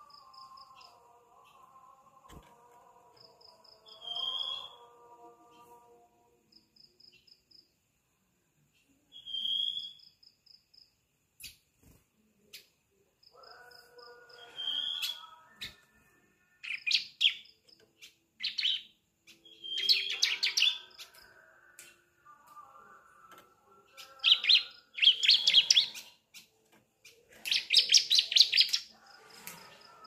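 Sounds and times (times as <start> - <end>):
bird chirping: 16.6 - 21.8, 22.4 - 30.0.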